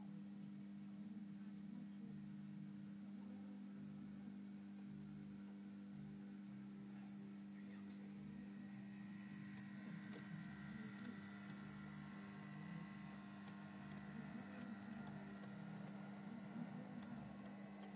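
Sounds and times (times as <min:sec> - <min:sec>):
faint electrical mains hum: 0:00.0 - 0:17.9
model train motor whine: 0:08.0 - 0:17.9.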